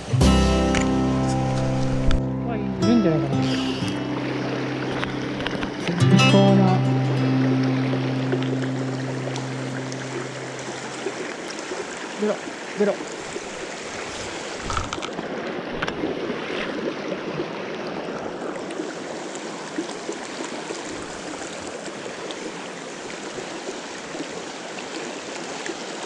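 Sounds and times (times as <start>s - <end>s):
stream running over rocks: 0.0s - 26.0s.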